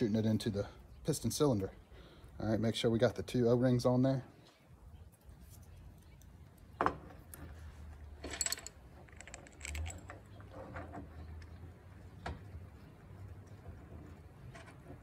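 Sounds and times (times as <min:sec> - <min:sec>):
small metal parts clicking and tapping: 0:08.2 - 0:10.8.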